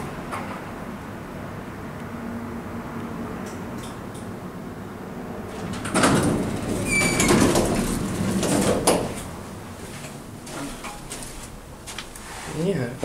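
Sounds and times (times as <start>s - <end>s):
elevator doors sliding open: 5.4s - 11.3s.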